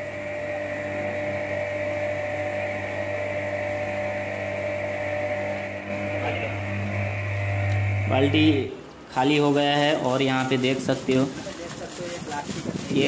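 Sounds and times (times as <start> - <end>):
electric pump humming: 0.0 - 13.0.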